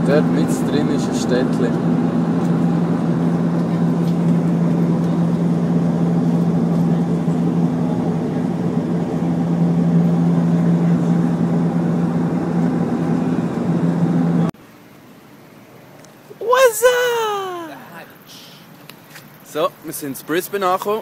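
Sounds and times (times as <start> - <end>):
airliner engines droning in cabin: 0.0 - 14.6.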